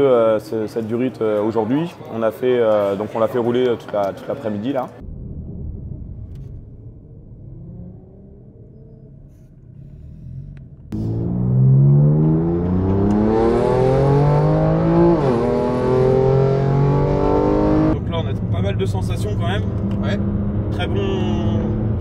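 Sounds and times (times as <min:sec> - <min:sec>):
car engine revving: 0:06.2 - 0:22.0.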